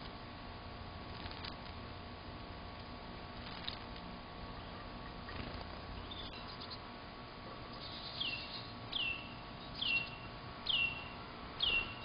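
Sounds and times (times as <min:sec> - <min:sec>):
songbird whistling descending notes: 0:07.8 - 0:12.0.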